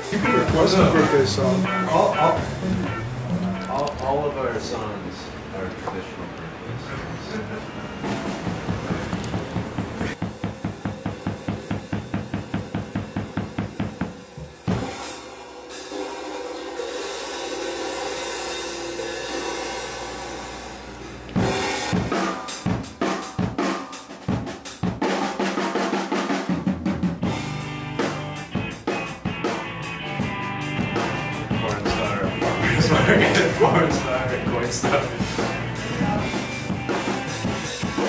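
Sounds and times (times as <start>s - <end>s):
drum kit playing: 0.0s - 4.2s, 7.9s - 38.0s
cymbal crash: 14.7s - 20.8s, 21.4s - 22.9s.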